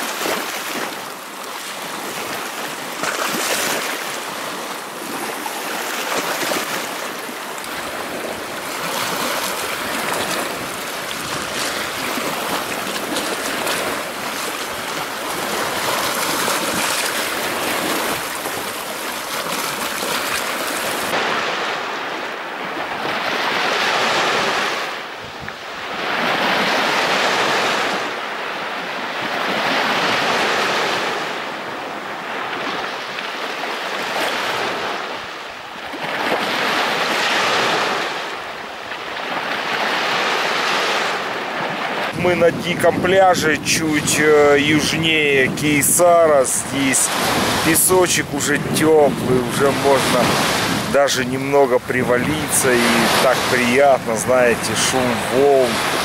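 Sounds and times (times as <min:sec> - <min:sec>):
waves washing on shore: 0:00.0 - 0:56.0.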